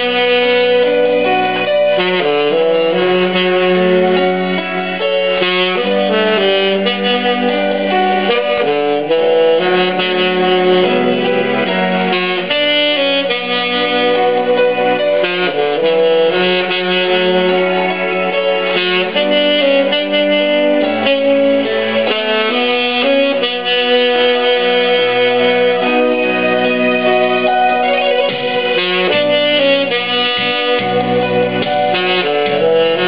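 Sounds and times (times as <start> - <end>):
backing accompaniment: 0.0 - 33.0
tenor saxophone melody: 0.0 - 33.0.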